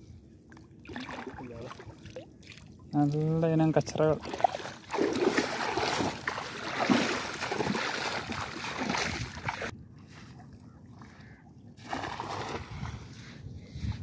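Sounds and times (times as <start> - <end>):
legs splashing through water: 0.8 - 9.7, 10.3 - 13.0
cast net splashing on water: 4.2 - 9.7, 11.8 - 12.7.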